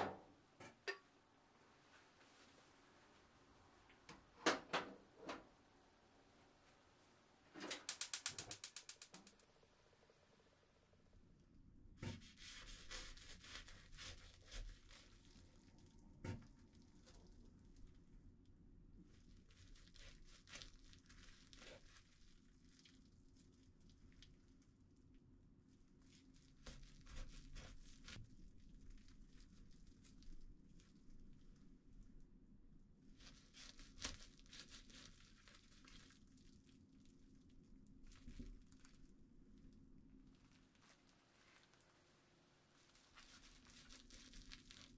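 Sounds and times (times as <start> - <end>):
sharp click: 7.6 - 9.4
knife sawing through sandwich: 12.2 - 14.9
plastic wrap crinkling: 12.2 - 16.0, 19.2 - 24.5, 33.2 - 39.2, 40.3 - 42.1, 42.7 - 44.9.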